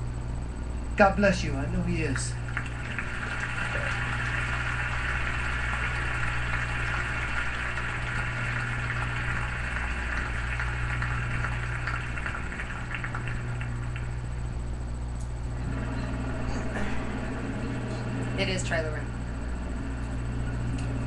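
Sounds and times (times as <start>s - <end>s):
electrical hum: 0.0s - 21.0s
audience applauding: 2.1s - 14.4s.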